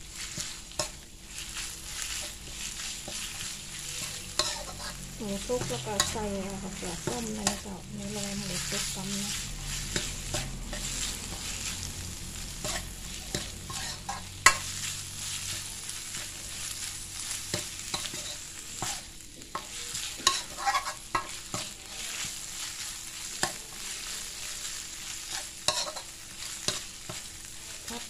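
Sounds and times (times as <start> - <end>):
meat sizzling in a wok: 0.0 - 28.0
metal spatula scraping a wok: 0.1 - 28.0.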